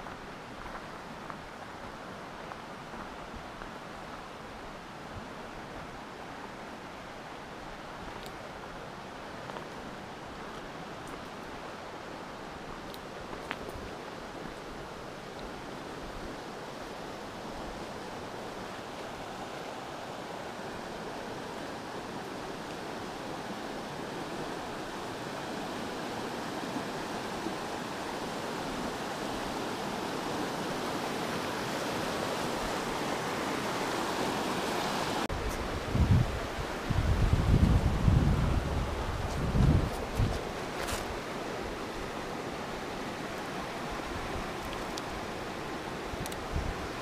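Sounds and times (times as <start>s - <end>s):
river water rushing over riffles: 0.0s - 47.0s
wind rumbling on microphone: 35.3s - 42.2s, 43.7s - 47.0s.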